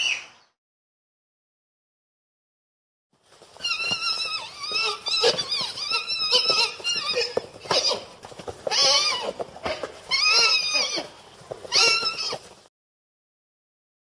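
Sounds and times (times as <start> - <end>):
horse whinnying: 3.6 - 12.7.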